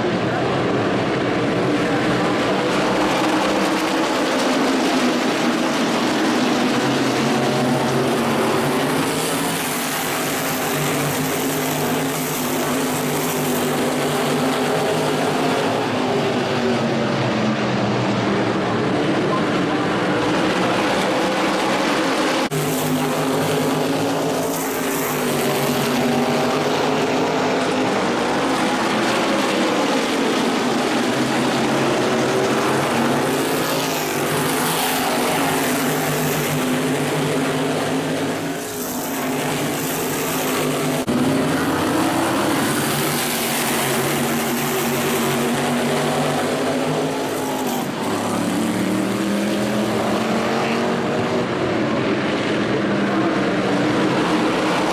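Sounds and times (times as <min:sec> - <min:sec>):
race car engines passing: 0:00.0 - 0:54.9.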